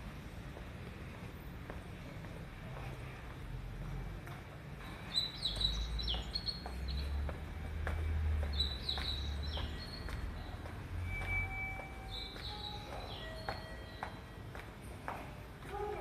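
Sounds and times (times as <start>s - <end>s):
footsteps on concrete stairs: 0.0s - 15.9s
birds chirping: 4.8s - 14.4s.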